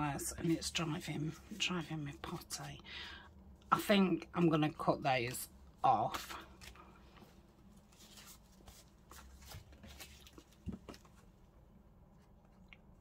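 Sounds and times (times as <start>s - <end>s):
paper rustling: 6.4s - 11.3s.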